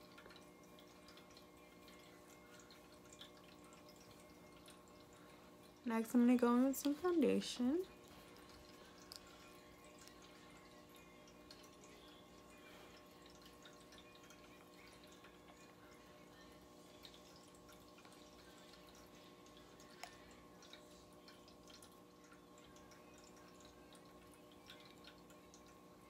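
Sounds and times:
faint steady hum: 0.0s - 26.0s.

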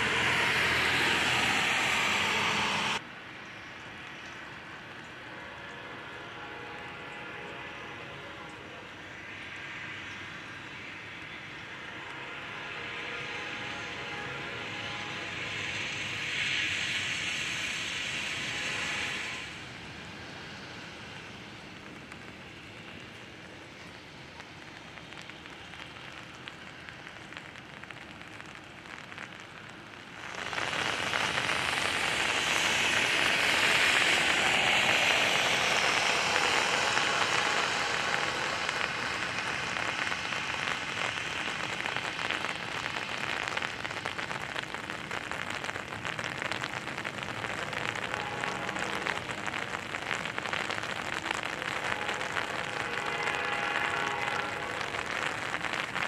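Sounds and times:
car tyres hissing on wet road: 0.0s - 56.0s
freight train rolling by: 0.0s - 56.0s
light rain: 0.0s - 56.0s.

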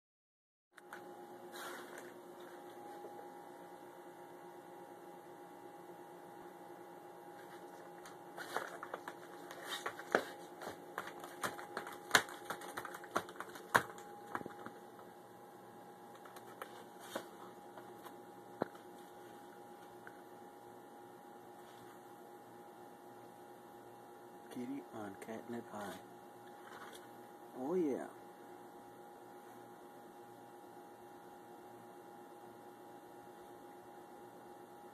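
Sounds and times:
steady low hum: 0.8s - 34.9s
cat scratching cardboard: 7.4s - 14.8s.

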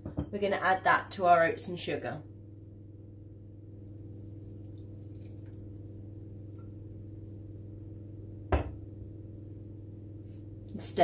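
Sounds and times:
low hum: 2.2s - 10.7s
faint wet drips: 4.0s - 7.0s.

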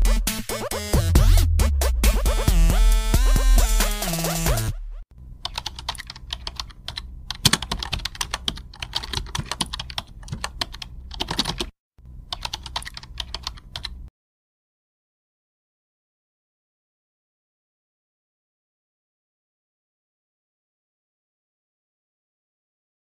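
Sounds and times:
electronic music: 0.0s - 5.0s
keyboard typing clicks: 5.4s - 11.7s, 12.3s - 14.1s.

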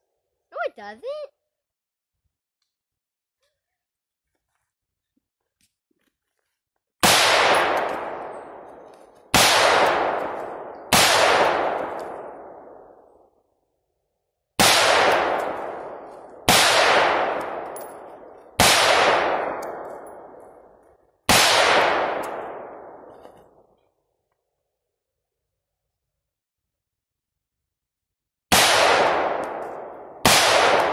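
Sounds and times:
rifle single shots: 7.0s - 13.1s, 14.6s - 23.6s, 28.5s - 30.9s.

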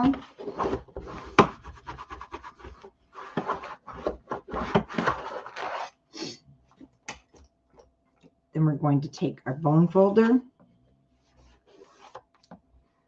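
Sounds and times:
plastic scraper on cardstock: 0.4s - 5.9s.

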